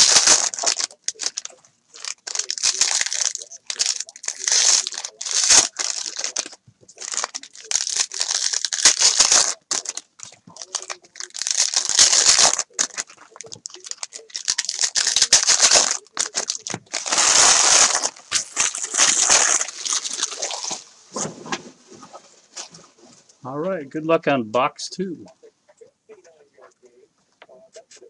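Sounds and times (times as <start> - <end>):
foil wrappers crinkling and tearing: 0.0 - 20.9.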